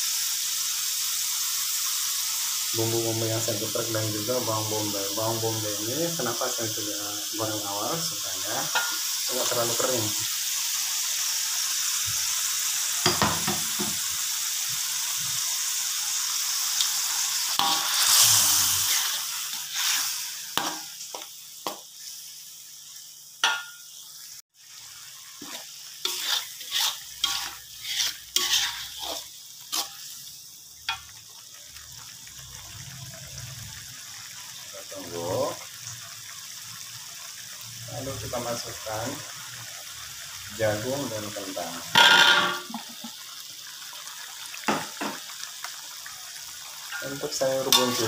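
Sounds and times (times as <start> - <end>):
paste sizzling in hot oil: 0.0 - 48.0
metal spoon scraping a wok: 17.6 - 20.9, 25.4 - 30.1.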